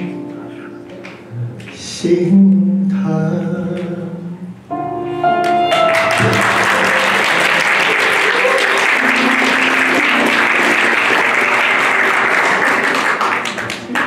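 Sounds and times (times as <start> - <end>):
backing music: 0.0 - 14.0
audience applause: 5.4 - 14.0.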